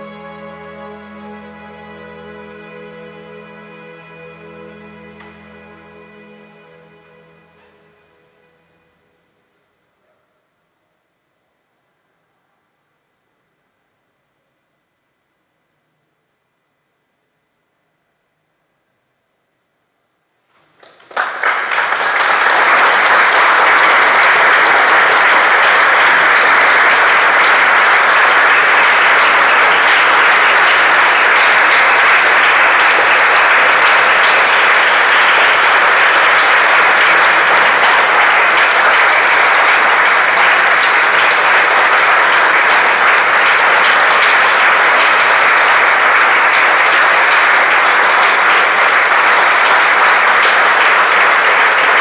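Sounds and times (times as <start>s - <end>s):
audience applauding: 20.6s - 52.0s.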